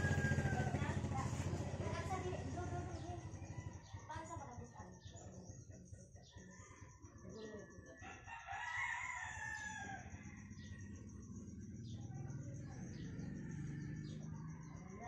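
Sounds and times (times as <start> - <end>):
rooster crowing: 0.0 - 1.2, 6.6 - 11.2.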